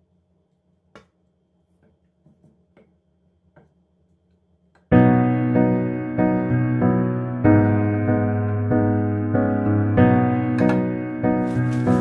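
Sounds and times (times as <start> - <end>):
piano music: 4.9 - 12.0.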